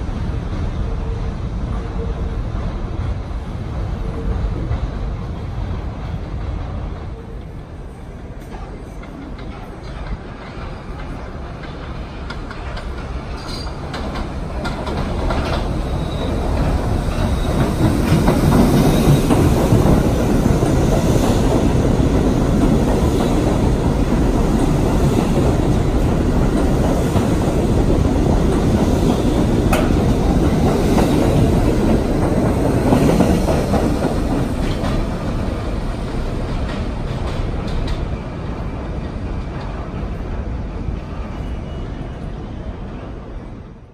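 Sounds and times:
subway train running on rails: 0:00.0 - 0:43.9.

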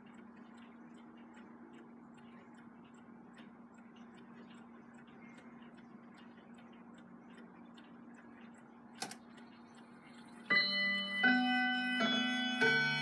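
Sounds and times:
mantel clock ticking: 0:00.0 - 0:13.0
clock chime ringing notes: 0:10.5 - 0:13.0.

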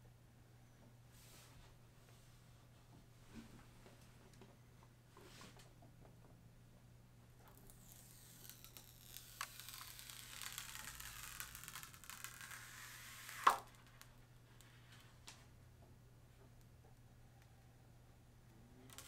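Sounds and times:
plastic film peeling crackle: 0:07.5 - 0:14.2.

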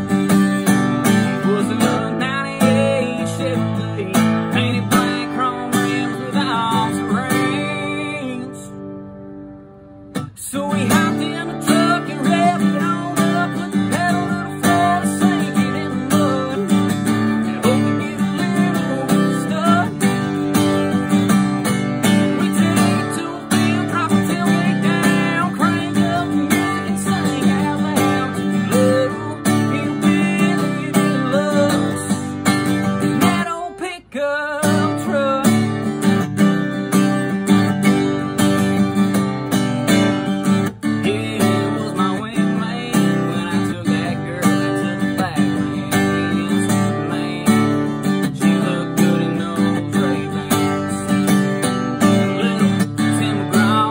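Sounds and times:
man singing: 0:00.0 - 0:08.9, 0:10.2 - 0:53.9
acoustic guitar strumming: 0:00.0 - 0:53.9.

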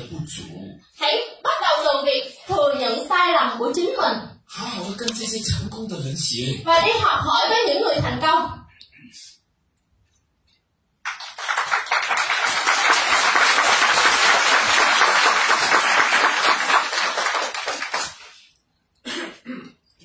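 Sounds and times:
audience applauding: 0:11.0 - 0:18.5.

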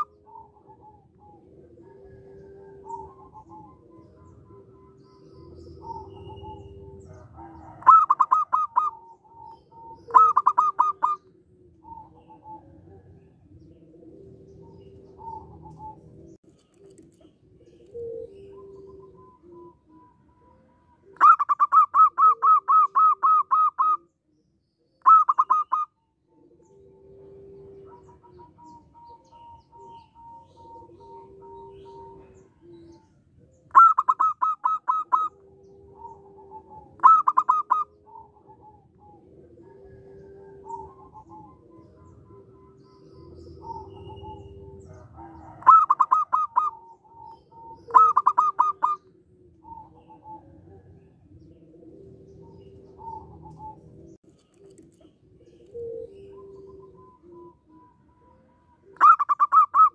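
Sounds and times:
dove staccato cooing: 0:00.0 - 0:24.2, 0:24.9 - 0:59.9
low drawn-out dove coos: 0:00.0 - 0:59.9.

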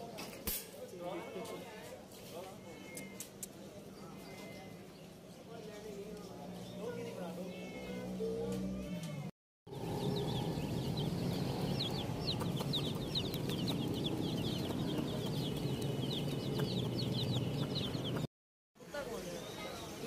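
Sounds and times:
chicks peeping: 0:09.7 - 0:18.3.

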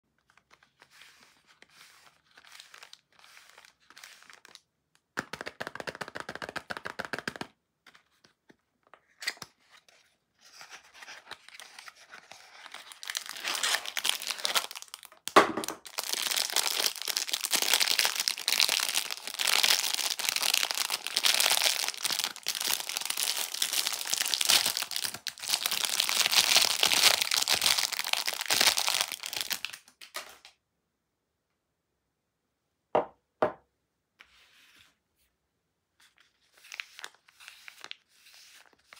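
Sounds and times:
cellophane crinkling and tearing: 0:00.2 - 0:04.6, 0:10.6 - 0:30.5, 0:36.2 - 0:38.9.

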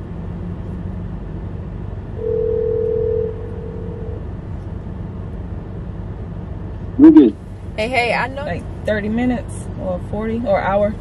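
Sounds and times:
phone ringback tone: 0:02.2 - 0:04.2.

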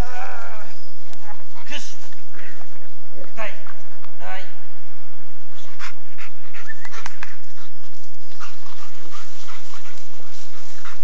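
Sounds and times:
dog panting and whining: 0:05.6 - 0:11.0.

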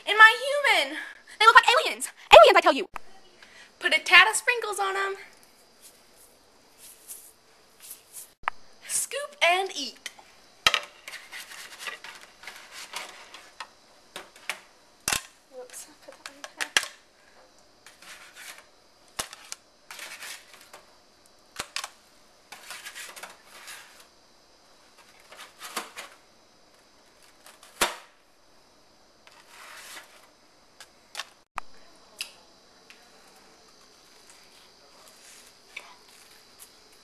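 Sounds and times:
spatula scraping metal sheet: 0:17.8 - 0:18.7.

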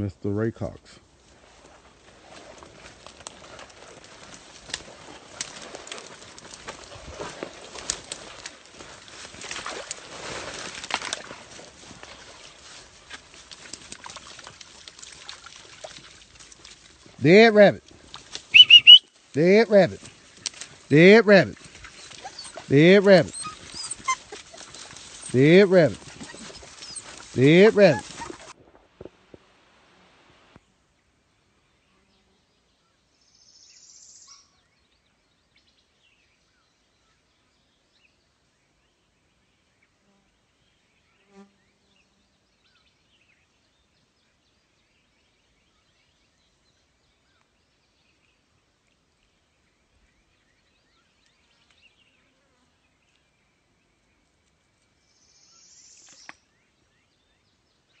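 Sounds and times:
faint chirps: 0:18.5 - 0:20.0.

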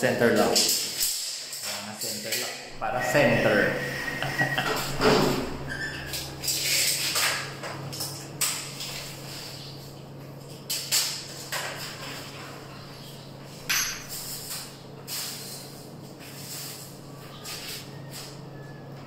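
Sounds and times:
steady low hum: 0:00.0 - 0:19.0
tape measure scraping and rattling: 0:06.4 - 0:07.4.

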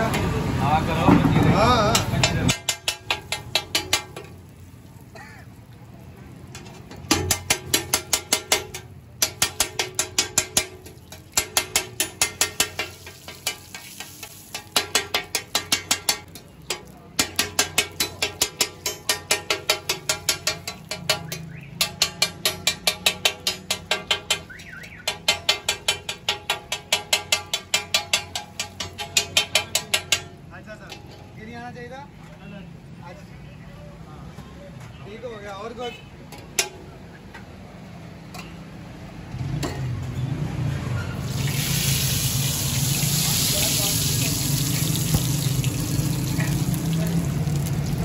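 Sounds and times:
metal spatula clanking on griddle: 0:01.1 - 0:04.4, 0:06.5 - 0:31.4, 0:36.3 - 0:37.4, 0:38.3 - 0:38.7.

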